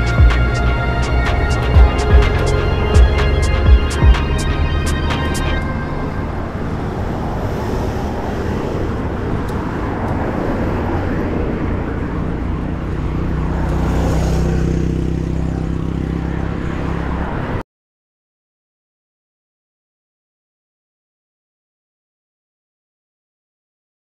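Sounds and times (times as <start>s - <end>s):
wind rumble: 0.0s - 14.0s
bicycle road noise: 0.0s - 17.6s
motor vehicle engine hum: 0.0s - 17.6s
passing car engines: 0.0s - 17.6s.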